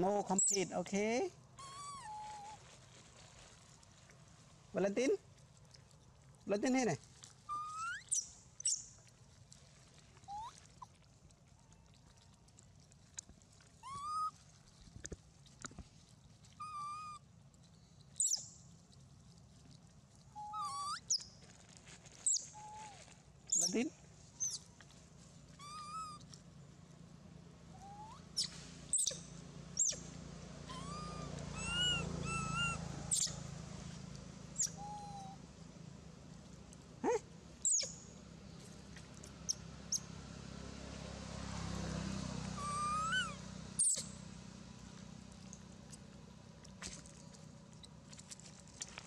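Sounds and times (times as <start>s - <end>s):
macaques squeaking and cooing: 1.6s - 2.6s, 7.5s - 8.8s, 10.3s - 10.6s, 13.8s - 14.3s, 16.6s - 17.2s, 20.4s - 21.2s, 22.2s - 23.8s, 24.4s - 24.7s, 25.6s - 26.3s, 27.7s - 29.2s, 29.8s - 33.4s, 34.5s - 35.4s, 37.0s - 38.0s, 42.6s - 44.1s
sharp high chirps: 28.1s - 29.2s, 37.6s - 38.0s, 43.0s - 44.1s.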